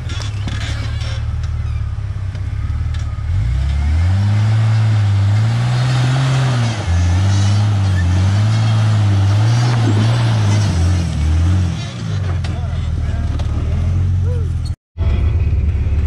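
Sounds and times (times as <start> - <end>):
engine revving: 2.4 - 16.0.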